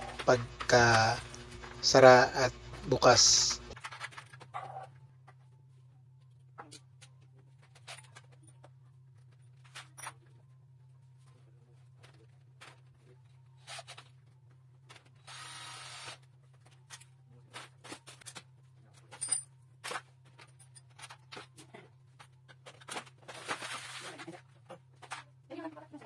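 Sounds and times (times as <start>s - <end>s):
steady low hum: 0.0s - 3.8s.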